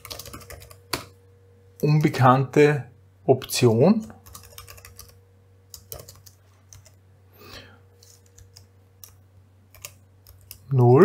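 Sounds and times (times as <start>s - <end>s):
typing on keyboard: 0.0s - 1.1s, 4.2s - 7.0s, 8.0s - 10.7s.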